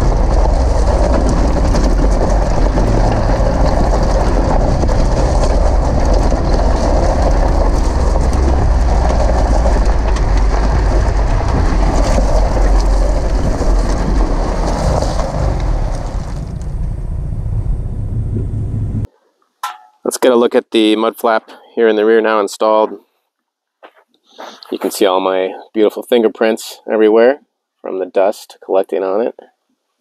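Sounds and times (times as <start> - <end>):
tyre crunching over gravel: 0.0 - 16.6
low vehicle rumble: 0.0 - 19.1.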